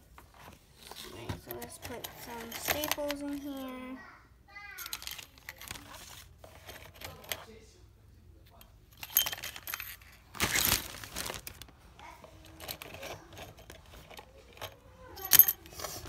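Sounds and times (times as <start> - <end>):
plastic bag crinkling: 10.2 - 11.8.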